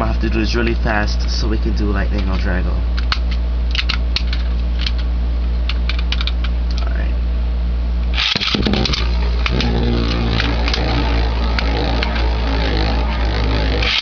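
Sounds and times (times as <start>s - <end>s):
spinning top launcher ripcord: 8.1s - 14.0s.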